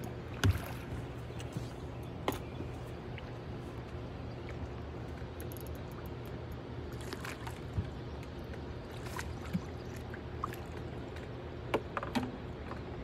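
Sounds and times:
water splashing: 0.0s - 4.7s, 6.9s - 11.4s
boat motor humming: 0.0s - 13.0s.

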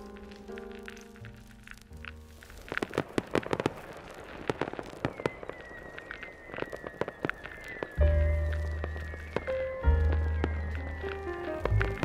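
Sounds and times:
fireworks bangs and crackles: 0.0s - 12.0s
high falling firework whistle: 3.2s - 12.0s.

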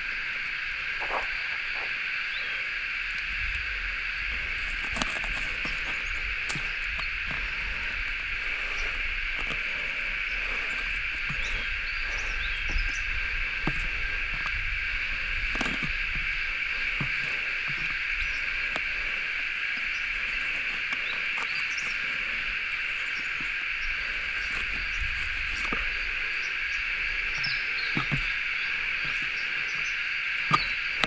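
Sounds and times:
insects droning: 0.0s - 31.0s.

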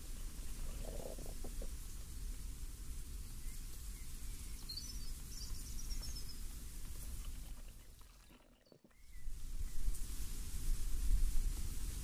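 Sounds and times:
rustling leaves: 0.0s - 8.1s, 9.0s - 12.0s
bird chirping: 3.3s - 6.5s.

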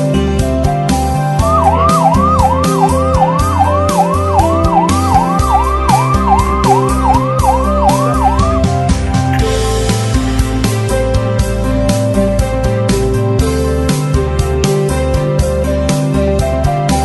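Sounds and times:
background music: 0.0s - 17.0s
ambulance siren yelping: 1.4s - 11.2s.

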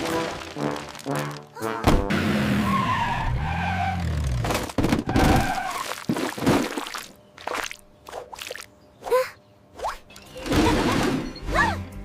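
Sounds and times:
tyres skidding: 0.0s - 5.8s.

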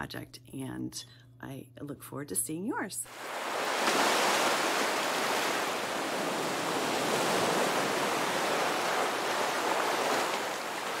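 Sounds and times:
ocean waves breaking: 3.1s - 11.0s.

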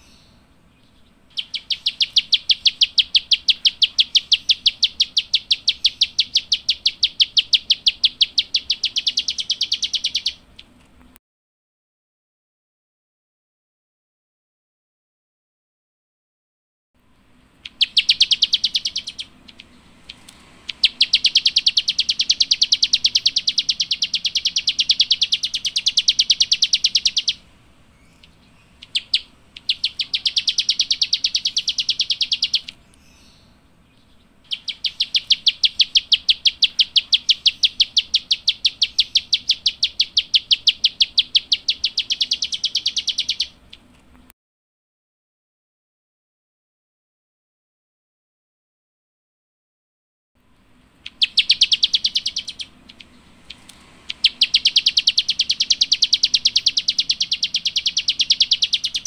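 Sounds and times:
songbird clicking chirps: 0.0s - 11.2s, 17.6s - 27.4s, 28.0s - 44.3s, 51.0s - 59.0s.

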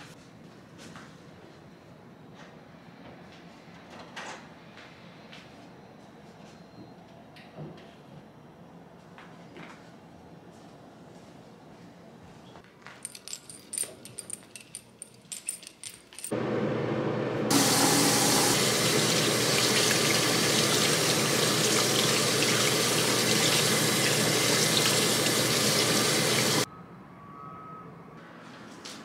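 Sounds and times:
light clicks and jingles: 13.0s - 16.3s
faucet water pouring over hands: 17.5s - 26.6s.

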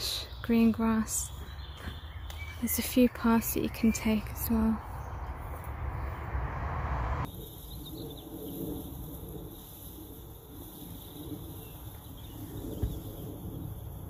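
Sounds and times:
wind buffeting microphone: 3.5s - 14.0s.

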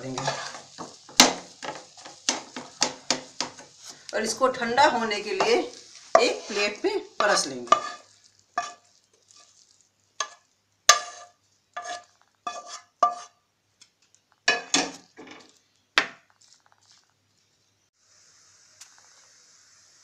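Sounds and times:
spatula clinking on frying pan: 10.2s - 13.3s.

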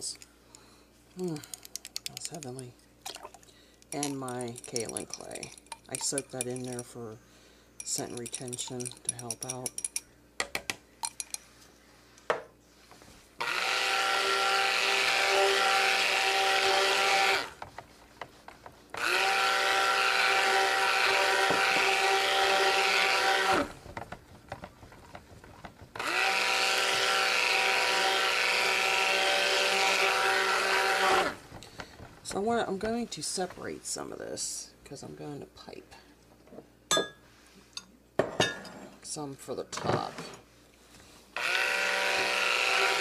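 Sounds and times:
utensil clinking on bowl: 3.9s - 7.0s, 7.8s - 10.1s, 11.0s - 11.4s
stick blender running: 13.4s - 17.6s, 19.0s - 23.8s, 25.9s - 31.5s, 41.4s - 43.0s.

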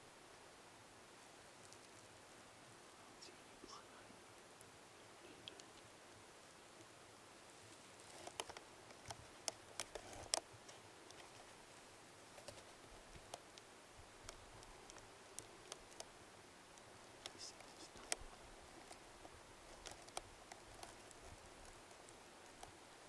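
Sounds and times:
faint sharp clicks: 5.3s - 6.9s, 8.0s - 11.4s, 12.3s - 22.8s.

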